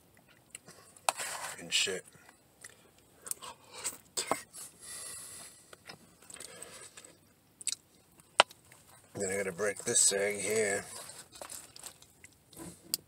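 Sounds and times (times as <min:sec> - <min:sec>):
chewing: 0:10.8 - 0:12.8.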